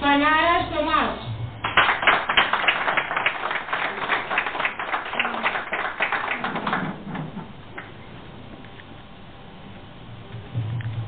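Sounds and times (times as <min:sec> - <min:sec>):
small group applauding: 0:01.6 - 0:08.0.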